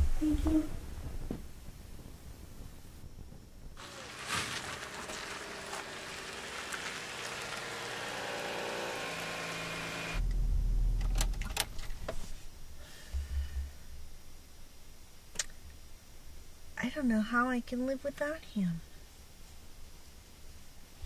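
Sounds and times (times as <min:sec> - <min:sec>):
car engine and tyre noise: 0:03.8 - 0:11.9
low rumble inside car: 0:09.7 - 0:11.9.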